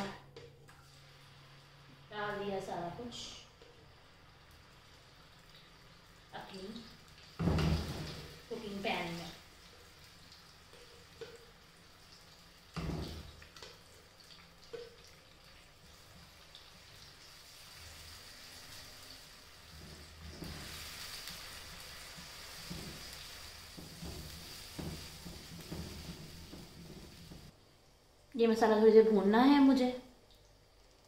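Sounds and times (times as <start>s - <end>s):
paste sizzling in oil: 3.8s - 27.5s
wooden spatula knocking on pan: 23.8s - 27.5s.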